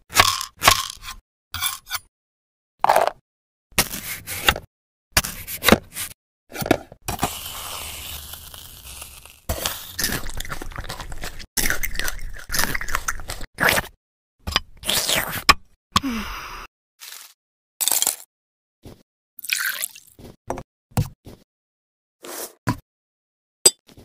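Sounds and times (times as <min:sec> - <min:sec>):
knife crunching into cake: 0:07.1 - 0:13.9.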